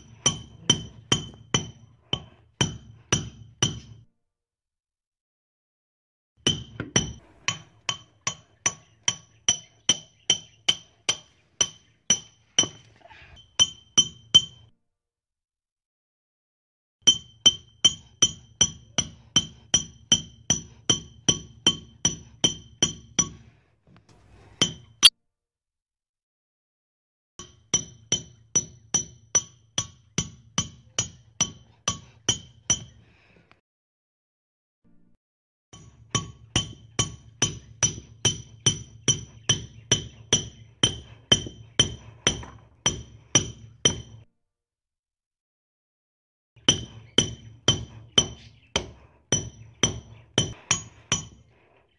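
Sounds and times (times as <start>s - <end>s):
hammer hitting a nail: 0.2s - 4.0s, 36.1s - 44.2s, 46.6s - 51.4s.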